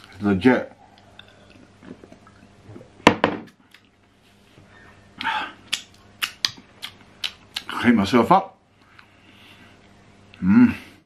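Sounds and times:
glass knocking on surface: 3.1s - 3.5s.

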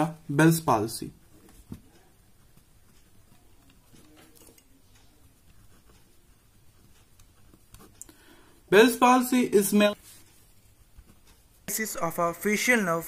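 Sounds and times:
pen scratching on paper: 5.4s - 8.0s.

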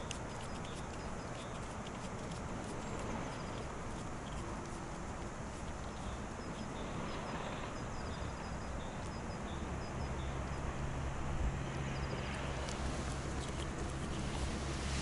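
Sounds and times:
faint high bird chirps: 0.0s - 1.7s, 5.9s - 10.7s
distant engine hum: 0.0s - 15.0s
wind: 0.0s - 15.0s.

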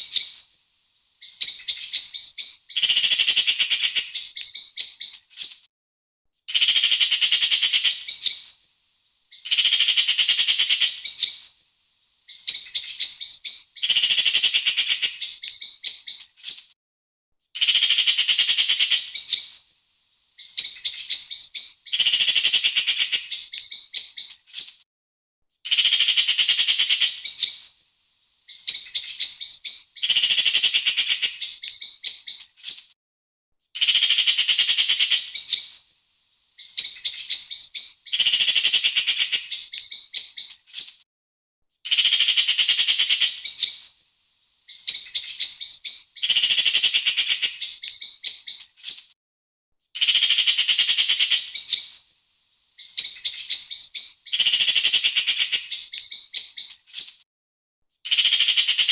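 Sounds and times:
magpie chattering: 1.2s - 5.6s, 6.5s - 8.4s, 9.3s - 11.4s, 17.6s - 19.6s, 25.7s - 27.7s, 33.8s - 35.8s, 36.6s - 40.5s, 41.9s - 43.9s, 44.7s - 49.0s, 50.0s - 52.0s, 58.1s - 58.9s.

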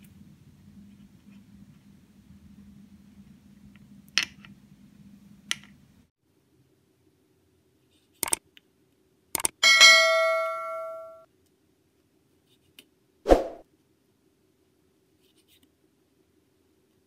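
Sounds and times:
ringing bell ding: 9.6s - 11.3s.

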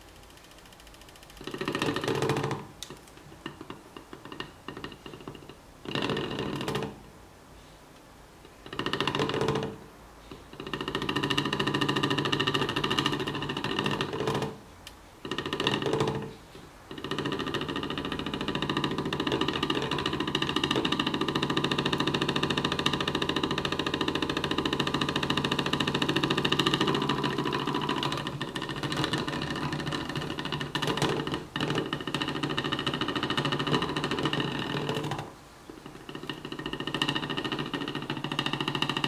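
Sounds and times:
magnet rattling against plastic: 16.9s - 39.0s.

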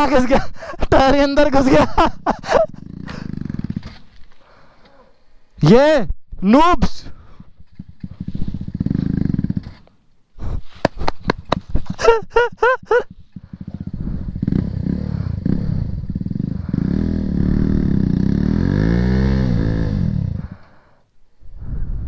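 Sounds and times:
motorcycle engine revving: 2.4s - 4.4s, 7.3s - 10.0s, 11.2s - 20.9s.

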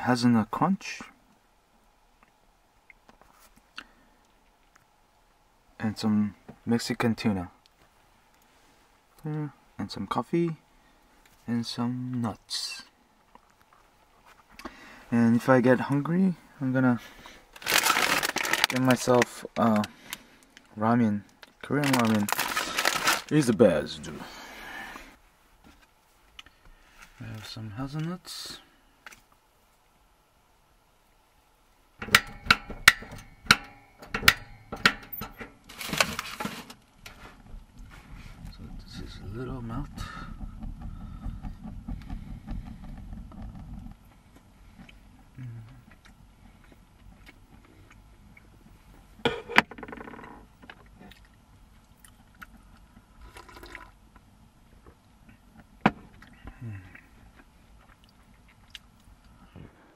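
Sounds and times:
sharp knocks and clicks: 32.0s - 35.5s
sips from a mug: 53.2s - 53.9s.

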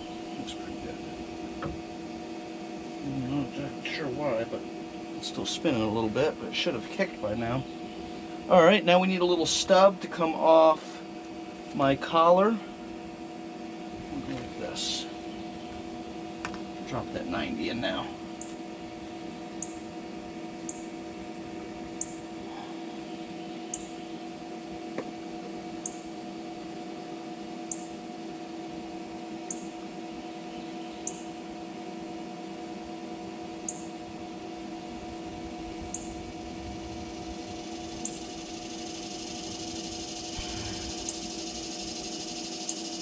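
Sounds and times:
steady multi-pitch hum: 0.0s - 43.0s.

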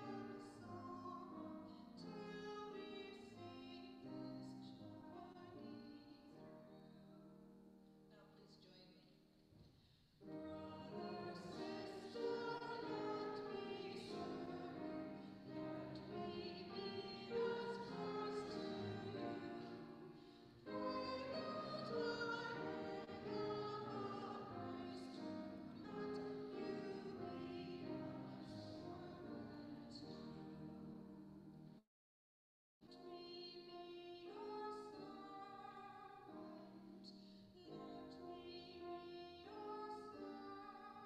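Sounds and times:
piano accompaniment: 0.0s - 7.6s, 10.2s - 31.8s
person singing sacred song: 10.3s - 20.0s, 20.7s - 30.7s.

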